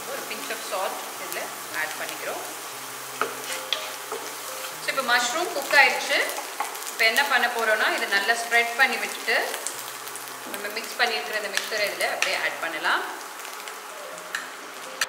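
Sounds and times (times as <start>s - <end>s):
mushrooms sizzling in butter: 0.0s - 15.0s
wooden spatula scraping pan: 3.2s - 4.9s.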